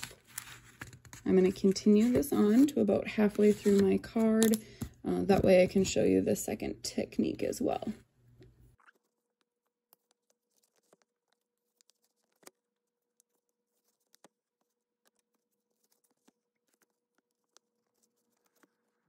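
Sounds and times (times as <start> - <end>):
needle and thread through fabric: 0.0 - 4.6, 8.8 - 19.0.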